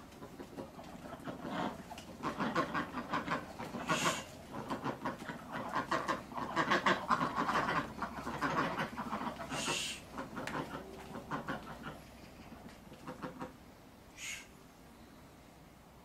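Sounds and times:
ducks quacking: 0:00.0 - 0:14.6
brief hiss: 0:09.5 - 0:10.0, 0:14.1 - 0:14.6.

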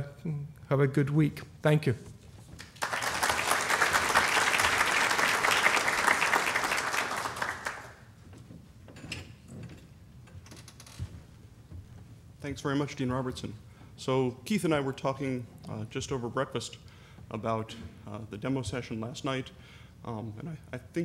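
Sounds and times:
audience applauding: 0:02.6 - 0:08.1.

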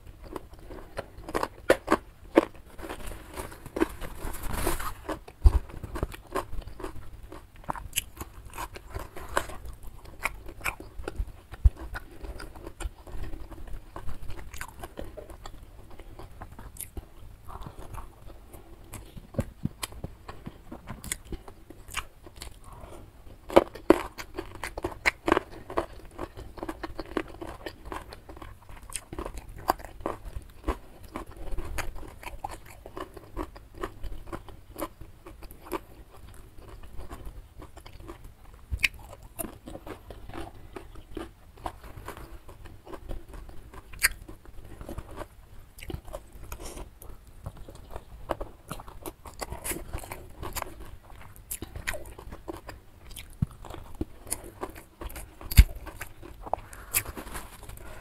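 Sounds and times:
crunchy chewing: 0:00.0 - 0:58.0.

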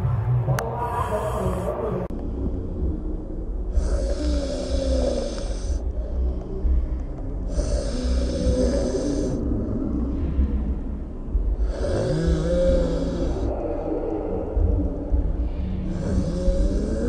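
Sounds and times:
steady low rumble: 0:00.0 - 0:17.0
man snoring: 0:03.7 - 0:05.8, 0:07.5 - 0:09.4, 0:11.6 - 0:13.5, 0:15.9 - 0:17.0.

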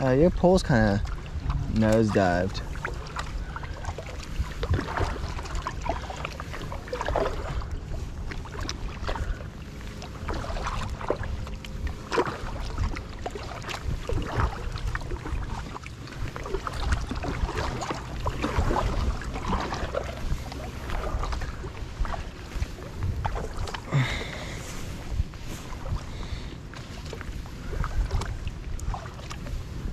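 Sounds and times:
low rumble: 0:00.0 - 0:29.9
paddle strokes splashing: 0:00.0 - 0:29.9
water sloshing against hull: 0:00.0 - 0:29.9.

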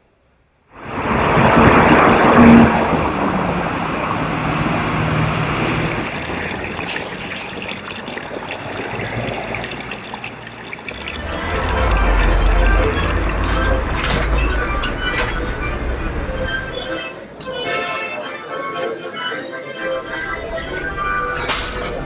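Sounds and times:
street traffic: 0:00.8 - 0:17.7, 0:19.8 - 0:22.0
fountain trickling into trough: 0:04.3 - 0:16.8
vehicle engine running: 0:10.9 - 0:16.8.

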